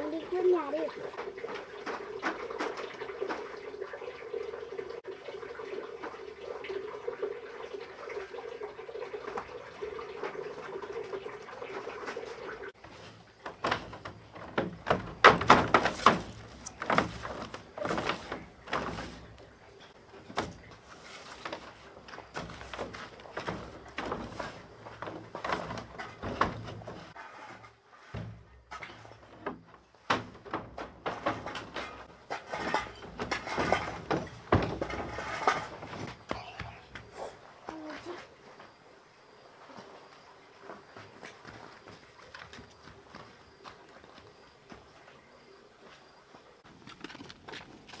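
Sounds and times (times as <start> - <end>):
water trickling into a basin: 0.0 - 13.5
broom sweeping wooden floor: 15.8 - 19.4, 20.4 - 24.8.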